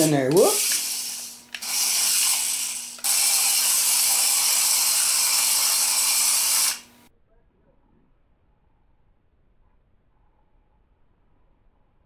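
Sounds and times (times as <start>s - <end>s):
toy electric motor whirring: 0.0s - 7.0s.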